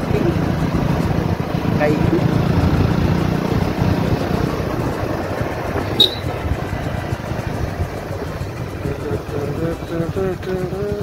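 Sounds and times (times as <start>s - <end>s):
motorcycle running at speed: 0.0s - 11.0s
wind rushing over microphone: 0.0s - 11.0s
short sharp high chirp: 6.0s - 6.3s.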